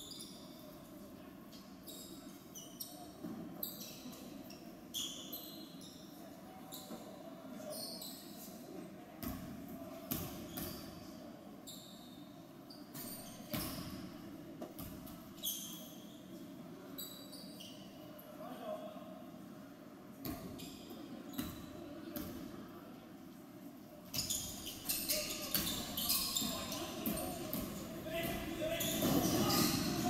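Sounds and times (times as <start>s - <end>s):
sneakers squeaking on hardwood: 24.1s - 30.0s.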